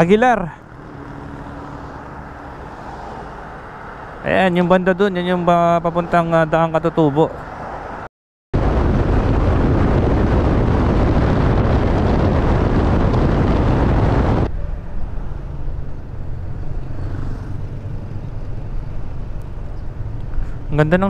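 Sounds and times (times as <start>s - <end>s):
wind rushing over microphone: 7.8s - 20.8s.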